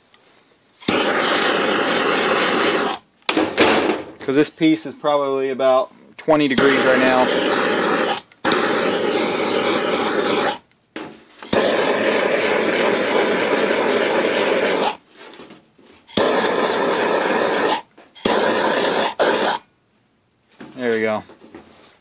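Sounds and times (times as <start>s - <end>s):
gas torch flame hissing: 0.8s - 3.0s, 6.2s - 10.6s, 11.4s - 15.0s, 16.1s - 19.7s.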